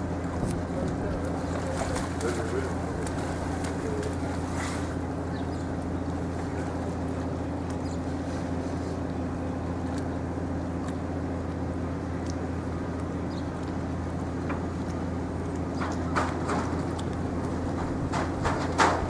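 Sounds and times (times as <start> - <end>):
engine humming: 0.0 - 19.0.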